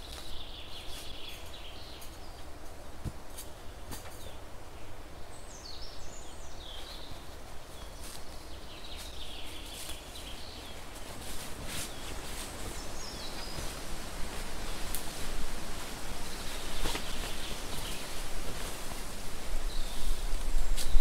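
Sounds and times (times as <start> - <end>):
small birds chirping: 0.0 - 21.0
cloth sheet rustling: 9.0 - 21.0.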